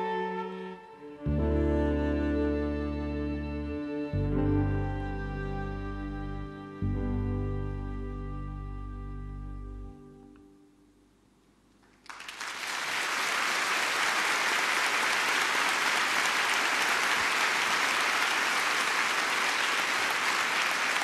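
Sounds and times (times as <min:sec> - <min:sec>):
large audience applauding: 0:11.8 - 0:21.0.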